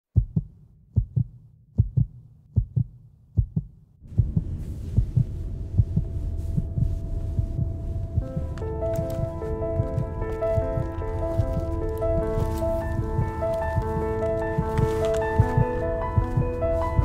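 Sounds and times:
heartbeat thumps: 0:00.1 - 0:17.0
held musical tone: 0:04.0 - 0:17.0
low rumbling drone: 0:04.0 - 0:17.0.

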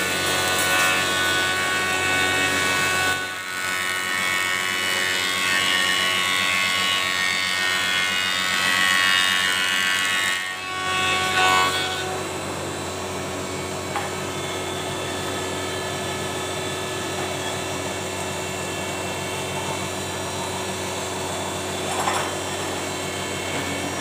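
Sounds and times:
thickness planer whining: 0:00.0 - 0:24.0.

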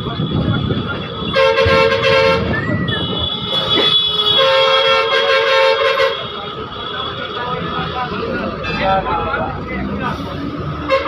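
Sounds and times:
bus road noise: 0:00.0 - 0:11.0
vehicle horn honking: 0:00.2 - 0:09.1.

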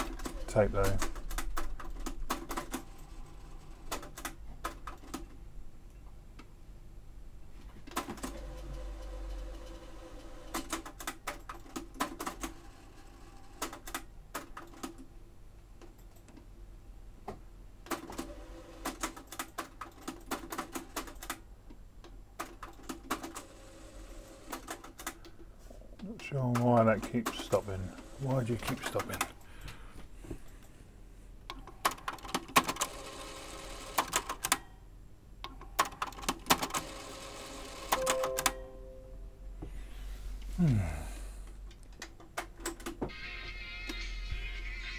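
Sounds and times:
faint steady hum: 0:36.9 - 0:42.4.

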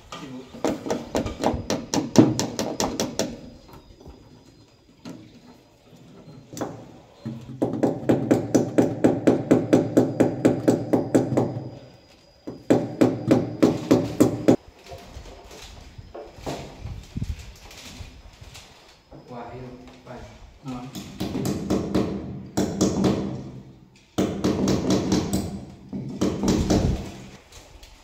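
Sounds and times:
hammer tapping nails: 0:00.6 - 0:03.4, 0:24.2 - 0:27.0.

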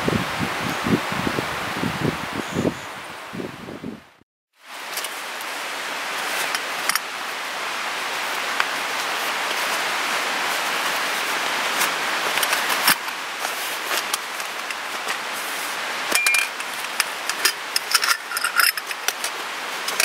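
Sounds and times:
mountain stream rushing: 0:04.6 - 0:20.0
canvas bag rustling: 0:08.4 - 0:20.0.

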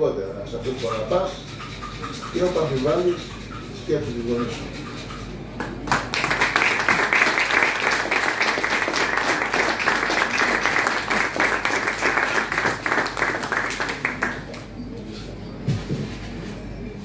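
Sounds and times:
audience applauding: 0:05.6 - 0:14.6.

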